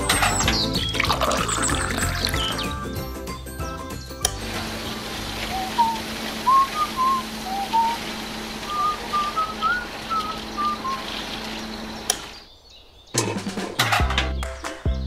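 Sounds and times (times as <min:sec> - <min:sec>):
person whistling a tune: 0:05.5 - 0:08.0, 0:08.7 - 0:11.0.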